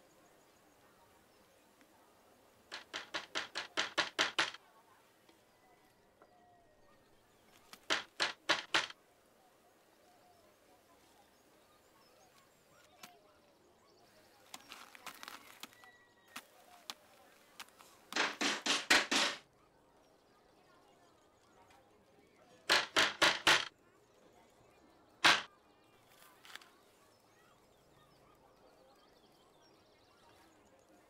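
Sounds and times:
faint taps: 0:02.7 - 0:04.6
knocking on wooden doors: 0:02.7 - 0:04.6, 0:07.8 - 0:08.9, 0:18.2 - 0:19.4, 0:22.7 - 0:23.7, 0:25.2 - 0:25.5.

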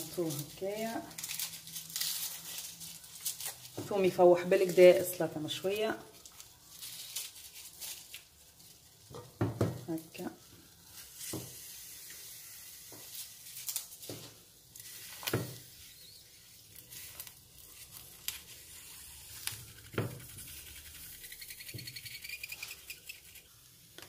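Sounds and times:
vegetables sizzling in pan: 0:08.0 - 0:20.8.

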